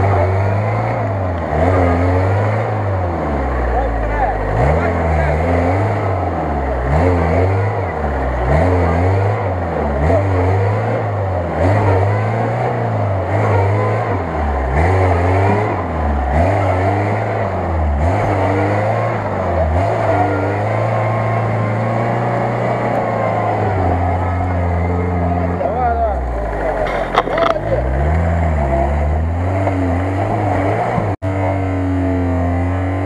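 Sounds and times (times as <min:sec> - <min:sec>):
car engine revving: 0:00.0 - 0:33.0.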